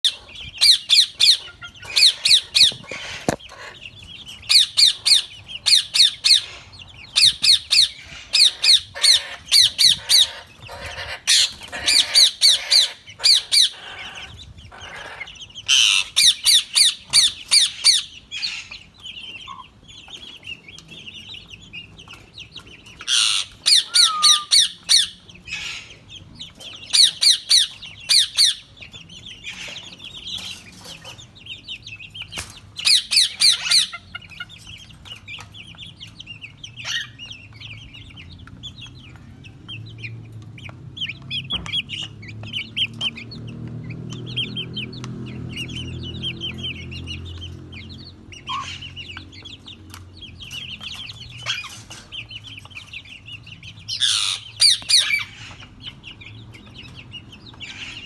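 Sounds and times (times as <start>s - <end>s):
parakeet screeching: 4.5s - 18.8s, 23.0s - 26.0s, 48.5s - 49.0s, 54.0s - 55.6s.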